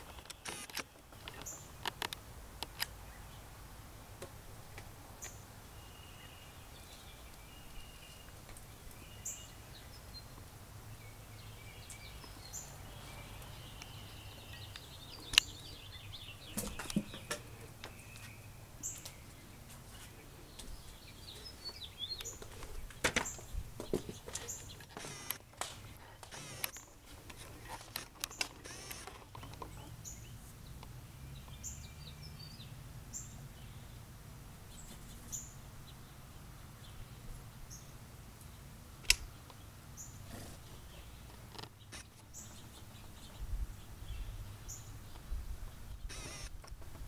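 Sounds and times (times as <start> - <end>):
sharp clicks and knocks: 0.0 - 2.9, 16.6 - 18.0, 22.2 - 29.8
faint songbird calls: 5.2 - 22.6.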